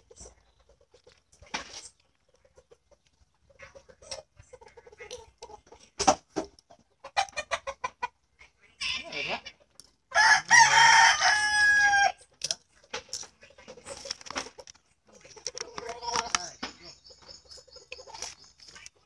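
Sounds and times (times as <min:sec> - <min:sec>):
chicken clucking: 0:00.0 - 0:19.0
rooster crowing: 0:10.1 - 0:12.2.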